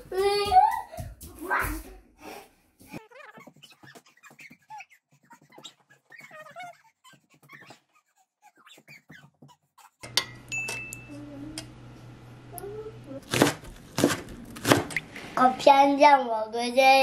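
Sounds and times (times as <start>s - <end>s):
child squealing: 3.0s - 10.0s.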